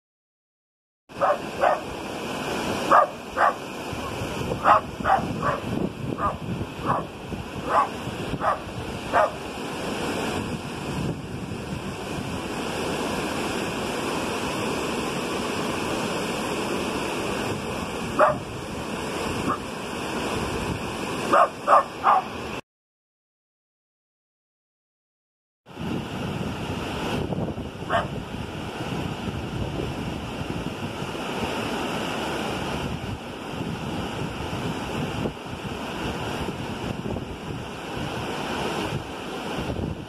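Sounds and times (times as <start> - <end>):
dog barking: 1.2 - 1.9, 2.9 - 3.6, 4.6 - 9.4, 18.2 - 18.5, 21.3 - 22.3, 27.9 - 28.2
waterfall rushing over rocks: 1.2 - 22.6, 26.0 - 40.0.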